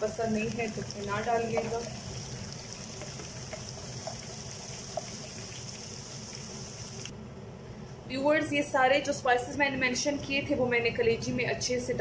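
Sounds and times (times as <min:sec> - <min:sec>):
food sizzling in hot oil: 0:00.0 - 0:07.1
spatula taps: 0:01.4 - 0:01.8.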